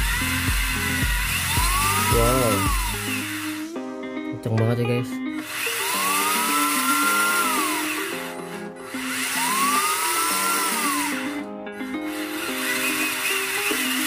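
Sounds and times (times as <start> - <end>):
electric motor whine: 0.0 - 3.9, 5.4 - 14.0
background music: 0.0 - 14.0.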